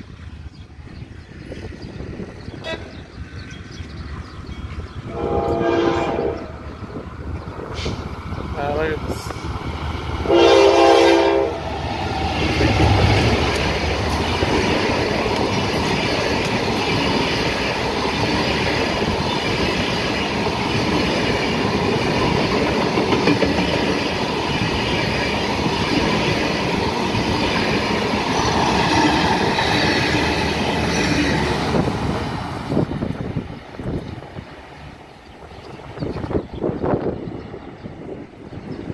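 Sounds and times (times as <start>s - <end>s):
locomotive engine passing: 0.0s - 38.9s
train wheels clickety-clack: 12.3s - 34.4s.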